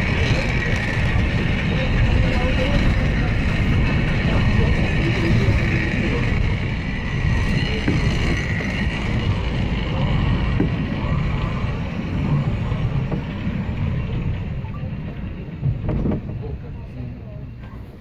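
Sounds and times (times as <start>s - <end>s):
railway car rumbling: 0.0s - 18.0s.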